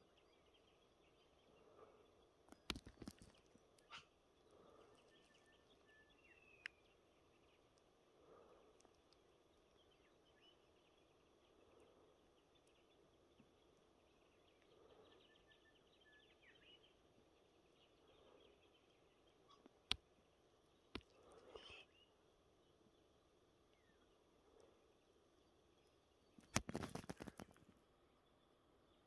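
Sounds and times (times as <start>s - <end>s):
brief rustle: 26.4s - 27.8s.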